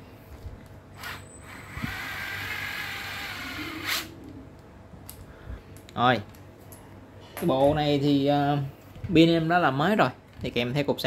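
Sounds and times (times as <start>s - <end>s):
cordless screwdriver motor whine: 1.0s - 4.1s.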